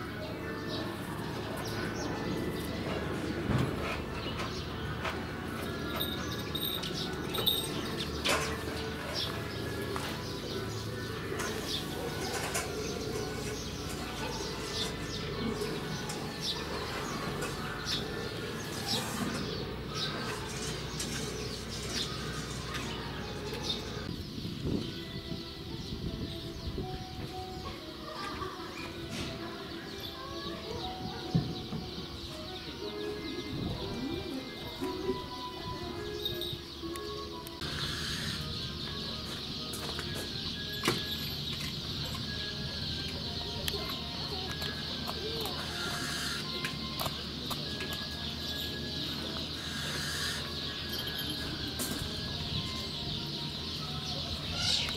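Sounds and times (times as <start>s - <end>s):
birds chirping: 0.0s - 54.9s
low wavering bird calls: 29.9s - 54.9s.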